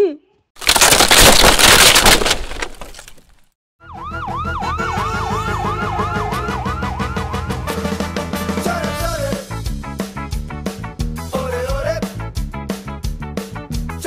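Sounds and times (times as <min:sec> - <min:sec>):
music with siren-like wail: 0:03.8 - 0:08.1.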